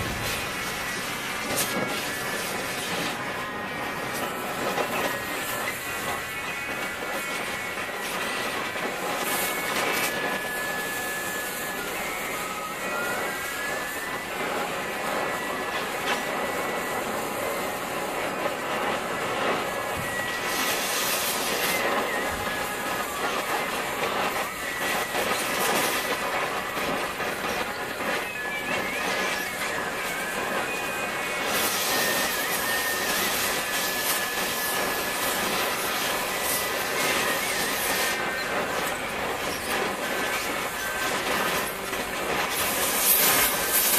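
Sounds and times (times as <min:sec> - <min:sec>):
cutting torch flame hissing: 0:00.0 - 0:43.9
faint high whistling: 0:00.0 - 0:43.9.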